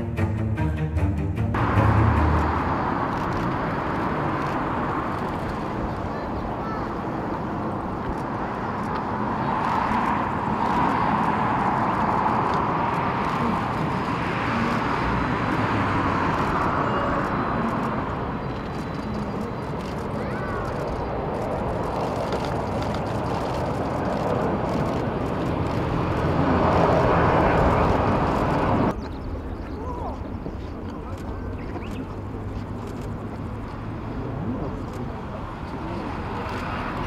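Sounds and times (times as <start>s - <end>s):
jet engines rushing: 1.6s - 29.0s.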